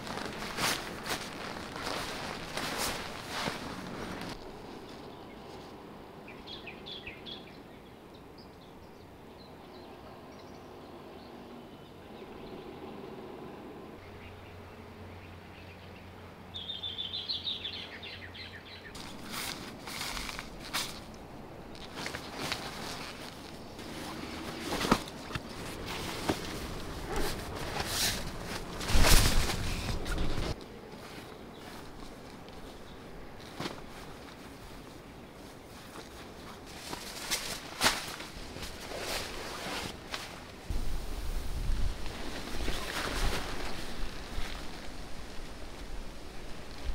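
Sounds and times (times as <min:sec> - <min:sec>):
tent fabric rustling: 0:00.0 - 0:05.8, 0:19.0 - 0:46.9
small birds chirping: 0:00.0 - 0:13.2, 0:14.0 - 0:27.9, 0:29.6 - 0:37.2
low outdoor background noise: 0:00.0 - 0:46.9.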